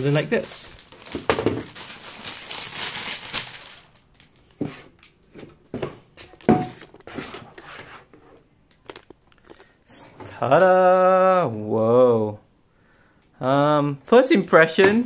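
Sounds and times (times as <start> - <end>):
plastic wrapper crinkling: 0.0 - 5.3, 8.7 - 9.8.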